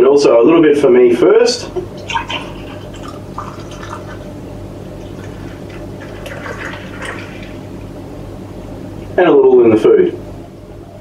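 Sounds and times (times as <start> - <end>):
steady low hum: 0.0 - 11.0
beer pouring and gurgling: 1.8 - 7.8.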